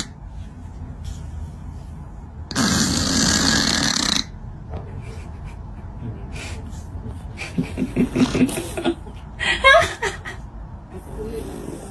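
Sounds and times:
cat snoring: 0:02.5 - 0:04.3, 0:11.0 - 0:11.9.

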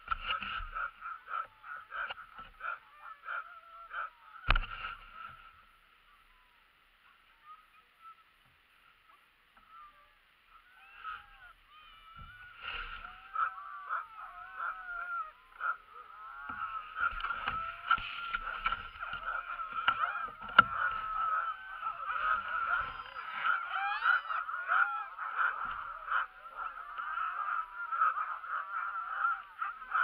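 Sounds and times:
dogs yelping and whining: 0:10.5 - 0:30.0.

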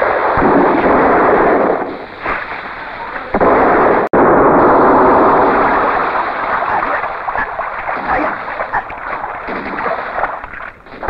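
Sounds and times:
water splashing and churning: 0:00.1 - 0:11.0
small crackles: 0:05.4 - 0:11.0.

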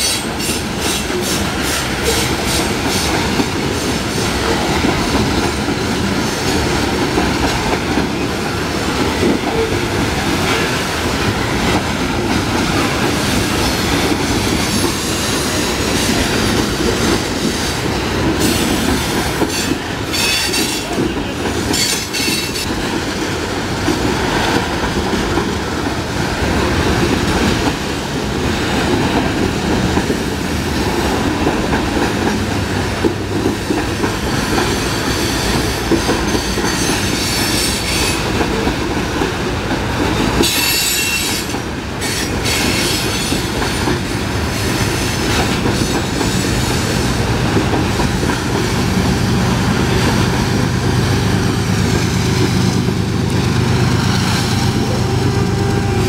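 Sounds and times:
wheels clickety-clack: 0:00.0 - 0:55.0
train cars rumbling past: 0:00.0 - 0:56.0
locomotive diesel engine: 0:48.6 - 0:56.0.

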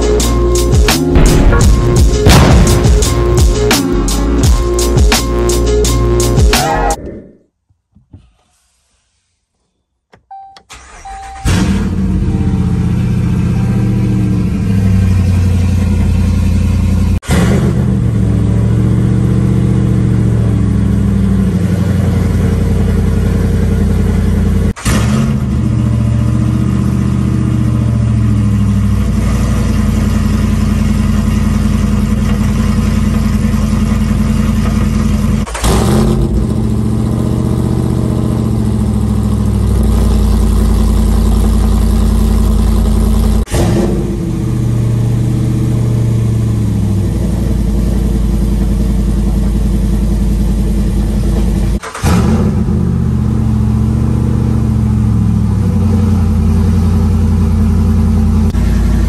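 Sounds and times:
short beep: 0:10.3 - 0:14.2
engine starting and idling: 0:10.3 - 0:17.9, 0:30.5 - 0:44.2, 0:48.3 - 0:54.5.

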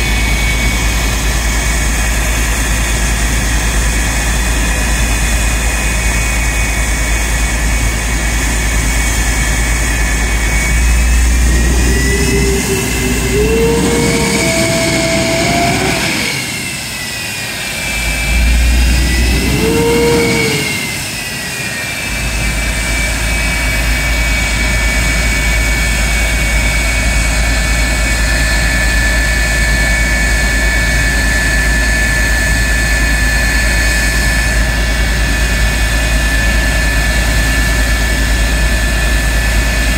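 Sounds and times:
jet engine whining: 0:00.0 - 0:39.9.

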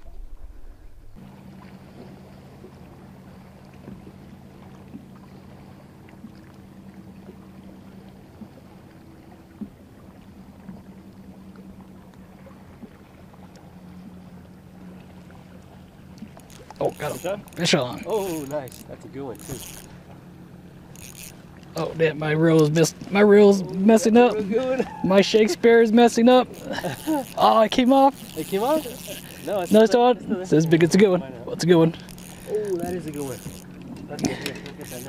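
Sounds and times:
boat motor humming: 0:00.0 - 0:35.0
faint small clicks: 0:13.5 - 0:13.7.

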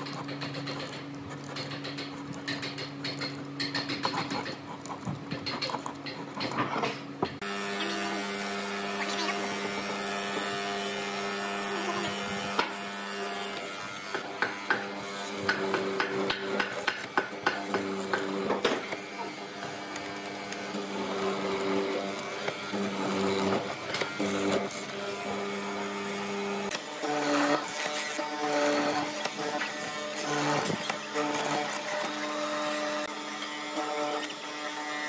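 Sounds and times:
chisel cutting into wood: 0:00.0 - 0:08.0, 0:09.0 - 0:34.5
mortiser humming: 0:00.0 - 0:35.0.

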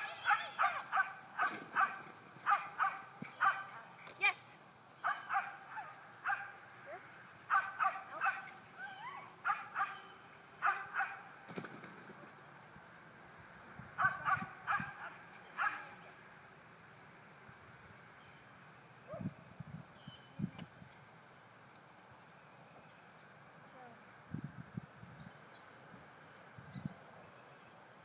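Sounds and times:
small dog barking: 0:00.0 - 0:03.8, 0:05.0 - 0:06.6, 0:07.5 - 0:11.3, 0:14.0 - 0:16.0.

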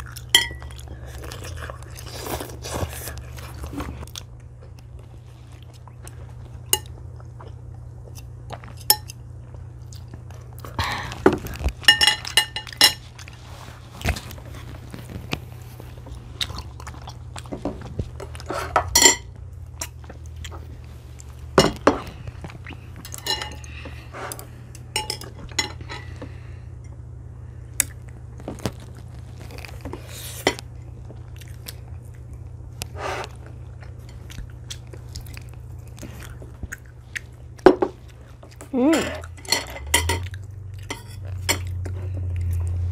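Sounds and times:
chewing and crunching: 0:00.0 - 0:26.6, 0:27.5 - 0:42.9
steady low hum: 0:00.0 - 0:42.9
chopsticks clinking on plates: 0:00.3 - 0:00.8, 0:11.8 - 0:13.1, 0:18.2 - 0:20.0, 0:23.0 - 0:24.0, 0:24.8 - 0:26.1, 0:38.9 - 0:41.8.

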